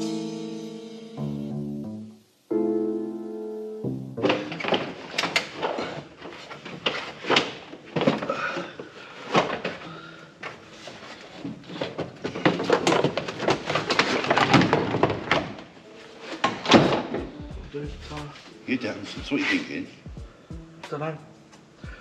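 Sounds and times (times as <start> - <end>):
irregular knocks and clatter: 10.4 - 15.7.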